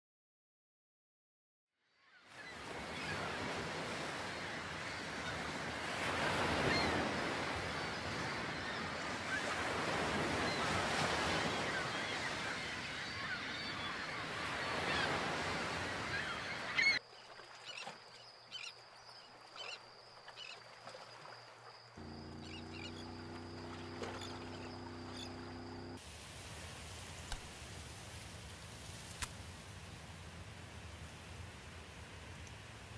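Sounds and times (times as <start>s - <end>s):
surf washing on shore: 2.4s - 17.0s, 22.0s - 32.9s
birds calling: 6.4s - 21.3s, 22.0s - 26.0s
steady high whine: 22.0s - 26.0s.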